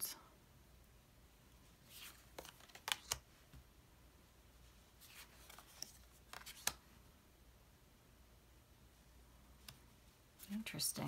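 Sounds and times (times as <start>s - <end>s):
cards clicking and tapping: 1.9s - 3.6s, 5.1s - 6.8s.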